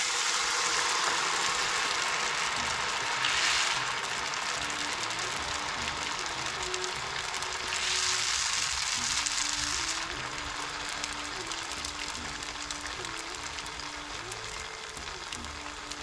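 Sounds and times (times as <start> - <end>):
oil sizzling in a frying pan: 0.0 - 16.0
soft slow background music: 0.2 - 16.0.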